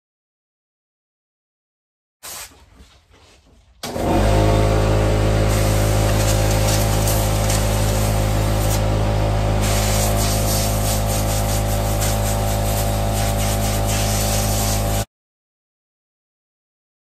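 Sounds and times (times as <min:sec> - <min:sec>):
air blow gun hissing: 0:02.2 - 0:02.6, 0:05.4 - 0:09.0, 0:09.6 - 0:15.1
low mechanical hum: 0:02.7 - 0:15.1.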